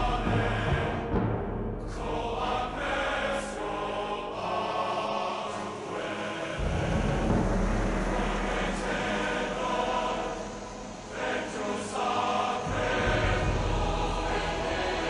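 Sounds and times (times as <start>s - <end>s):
choir singing sustained chords: 0.0s - 15.0s
low rumble: 6.6s - 15.0s.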